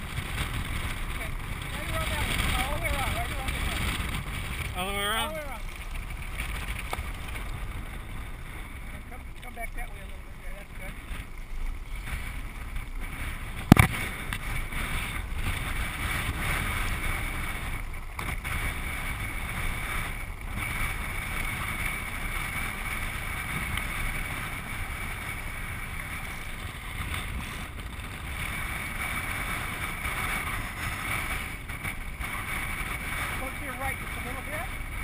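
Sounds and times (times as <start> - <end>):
wheels rolling on hard ground: 0.0 - 35.0
wind over microphone: 0.0 - 35.0.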